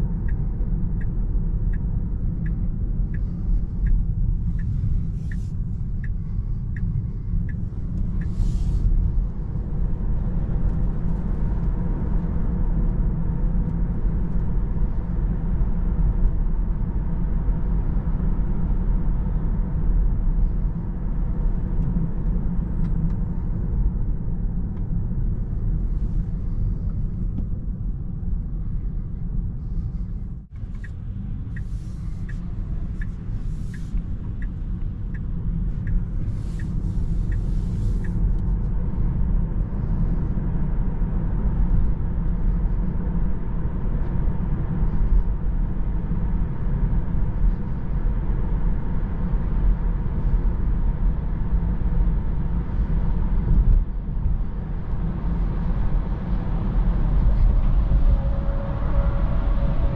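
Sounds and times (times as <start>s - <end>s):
tyre and road noise in car: 0.0s - 59.9s
turn signal ticking: 0.1s - 11.8s, 30.6s - 39.3s.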